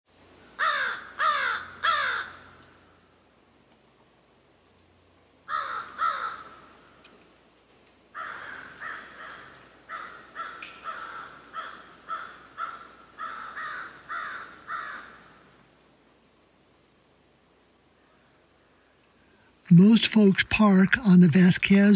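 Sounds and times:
crow cawing: 0:00.6 - 0:02.8, 0:05.5 - 0:07.0, 0:08.1 - 0:15.6.

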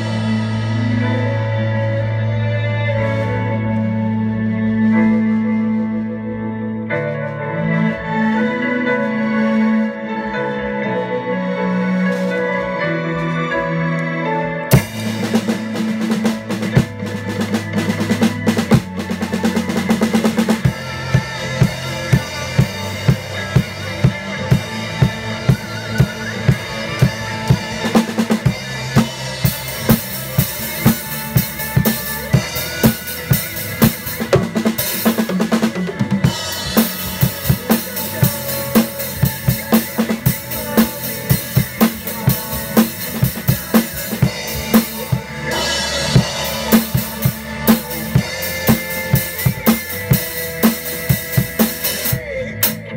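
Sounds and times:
backing song music: 0:00.0 - 0:52.9
bass drum and snare beat: 0:14.7 - 0:52.8.

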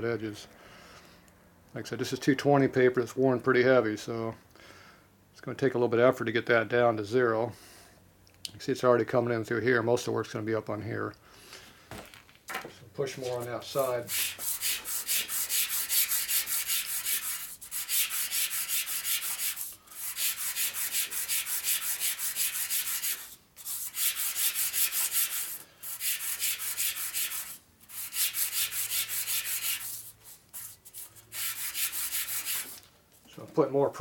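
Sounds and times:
metal cover scraping on sandpaper: 0:13.2 - 0:32.8.

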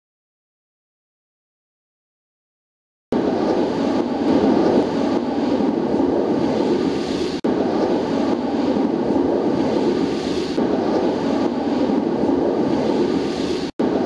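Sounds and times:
military jets roaring overhead: 0:03.1 - 0:14.0.

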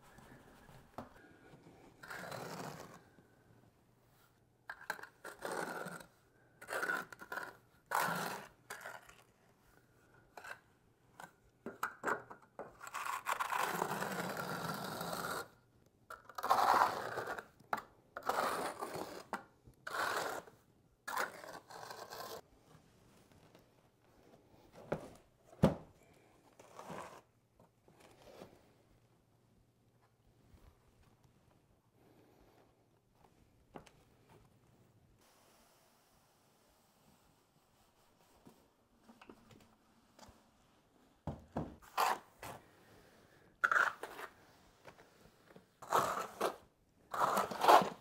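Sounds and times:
trowel scraping mortar: 0:16.3 - 0:17.5, 0:18.2 - 0:22.4, 0:43.6 - 0:44.4, 0:45.8 - 0:48.0.

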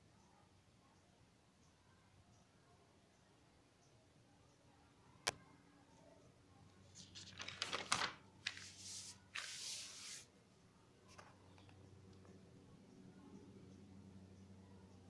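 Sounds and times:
paper page rustling: 0:06.9 - 0:10.3.

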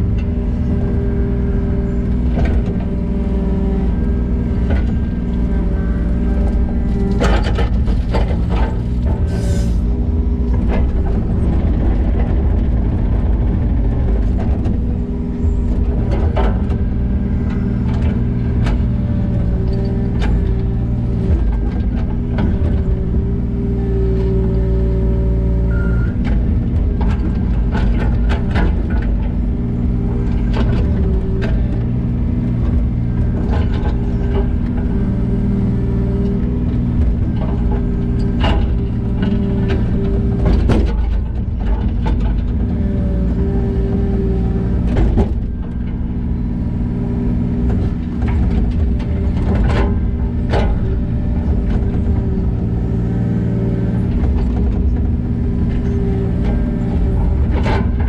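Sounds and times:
diesel engine running: 0:00.0 - 0:58.0
knocks and clanks: 0:36.2 - 0:46.5, 0:47.4 - 0:58.0.

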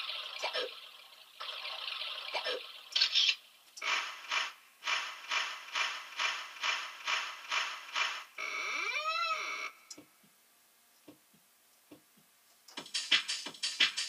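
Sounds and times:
noise burst: 0:00.0 - 0:10.1
noisy electronic pulses: 0:03.8 - 0:09.8.

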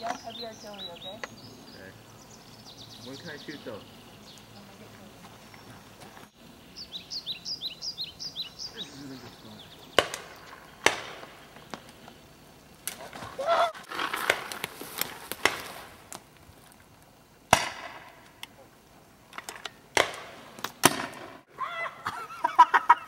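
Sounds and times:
distant voice calling out: 0:08.7 - 0:09.7
sharp gunshots: 0:09.9 - 0:11.4, 0:17.5 - 0:18.2, 0:19.9 - 0:21.4.

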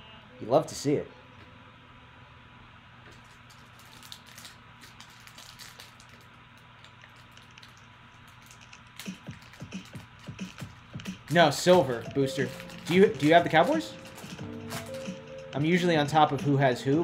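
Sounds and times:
foil wrapper crinkling: 0:03.1 - 0:15.2.

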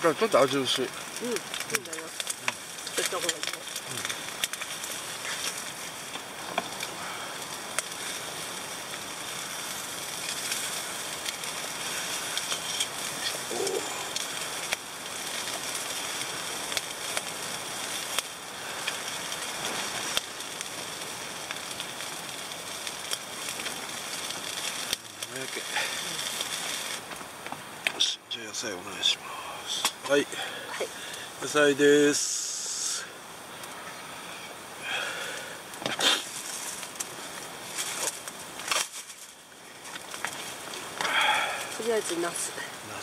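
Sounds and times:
chicken sizzling on grill: 0:00.0 - 0:43.0
sharp pops and crackles: 0:00.0 - 0:43.0.

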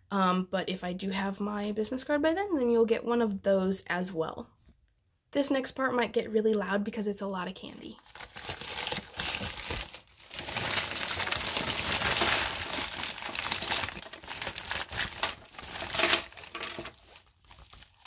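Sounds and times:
candy wrappers crinkling: 0:08.0 - 0:18.0.

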